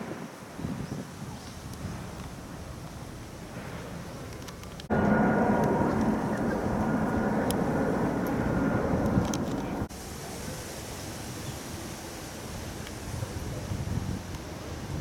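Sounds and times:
outdoor background noise: 0.0s - 15.0s
jet airliner flying overhead: 1.4s - 10.9s.

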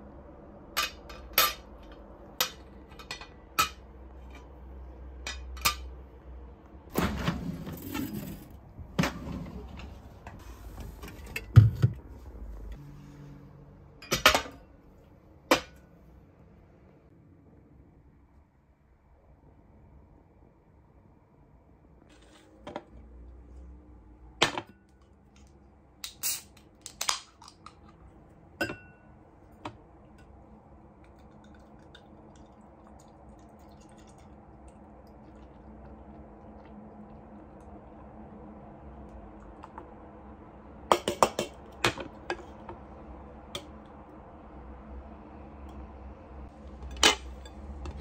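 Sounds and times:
beer pouring and fizzing: 30.8s - 38.3s.

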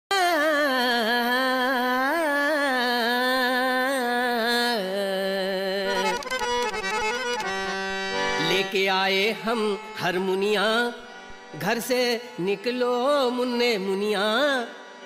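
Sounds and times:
person singing wordless phrase: 0.1s - 6.3s
harmonium: 0.1s - 15.0s.

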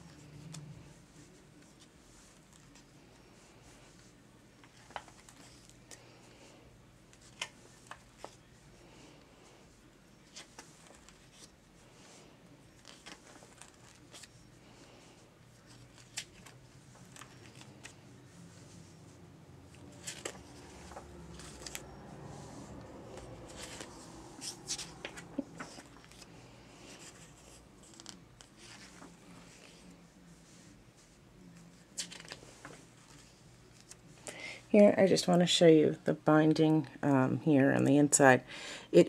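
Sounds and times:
book pages turning: 0.0s - 6.5s, 7.1s - 8.5s, 10.2s - 30.0s, 31.8s - 34.2s.

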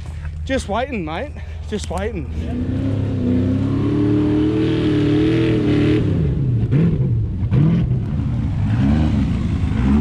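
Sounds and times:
truck engine revving: 2.3s - 10.0s.

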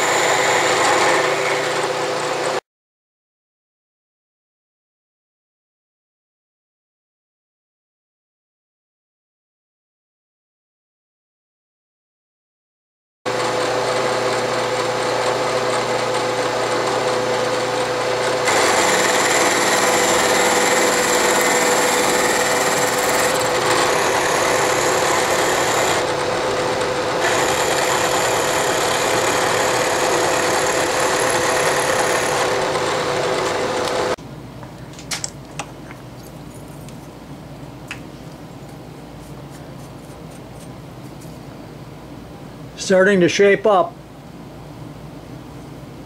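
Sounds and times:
end mill cutting metal: 0.0s - 2.6s, 13.3s - 34.2s
milling machine motor hum: 0.0s - 2.6s, 13.3s - 34.2s.

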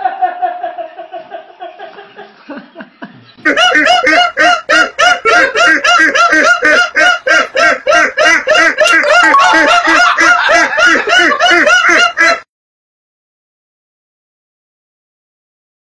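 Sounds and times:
high-pitched helpless laughter: 3.5s - 12.4s.

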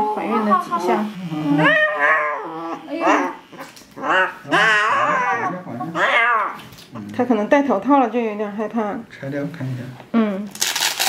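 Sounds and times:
cat yowling and growling: 1.6s - 3.4s, 4.0s - 6.6s.

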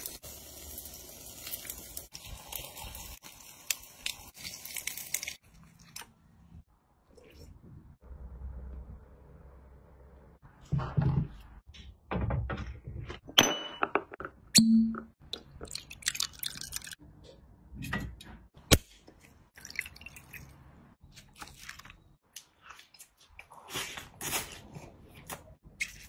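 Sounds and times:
tableware knocks and clicks: 13.2s - 15.1s.

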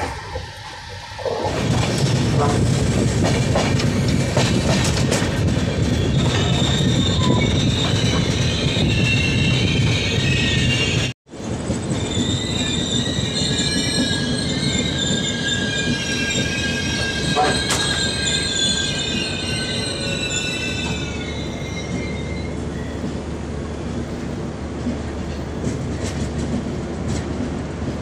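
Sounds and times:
train wheels squealing on rails: 0.0s - 24.3s, 25.1s - 27.9s
train running rumble: 0.0s - 28.0s.

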